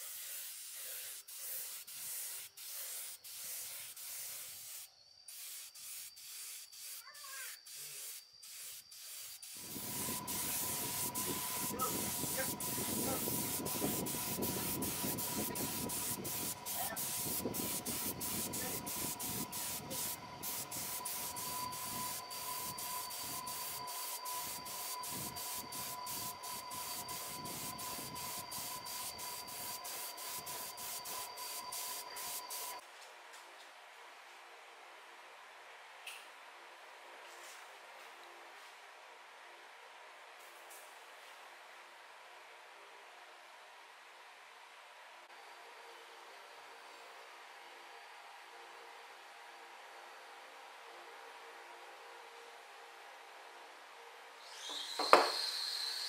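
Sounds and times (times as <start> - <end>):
paint spray gun hissing: 0.0 - 32.8, 54.5 - 56.0
low rushing noise with high whine: 9.6 - 32.9.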